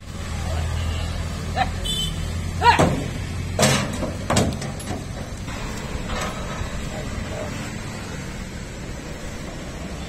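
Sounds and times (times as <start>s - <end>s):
sharp knocks and bangs: 2.7s - 5.4s.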